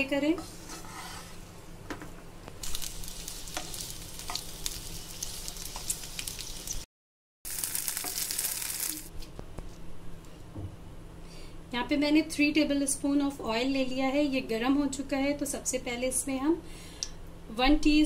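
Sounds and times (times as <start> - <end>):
vegetables sizzling in a frying pan: 2.6 - 6.9, 7.5 - 9.1.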